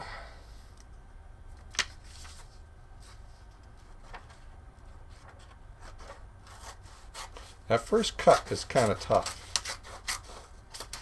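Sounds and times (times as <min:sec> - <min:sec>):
paper rustle: 0:01.7 - 0:07.6
scissors snipping paper: 0:08.2 - 0:11.0.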